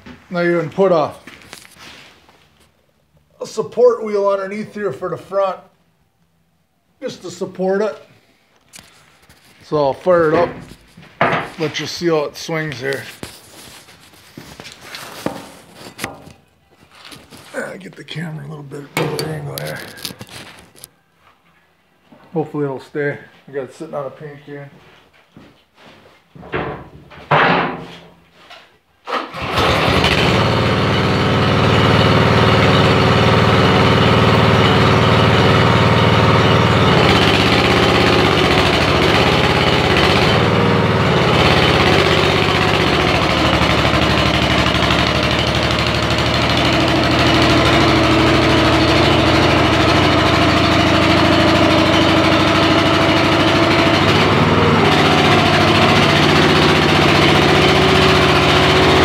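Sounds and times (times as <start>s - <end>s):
small gasoline engine running: 29.2s - 59.0s.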